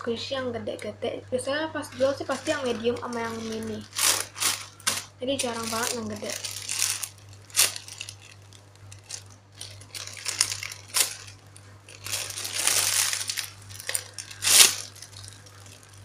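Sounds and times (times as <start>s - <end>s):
plastic packaging crinkling: 1.9s - 16.0s.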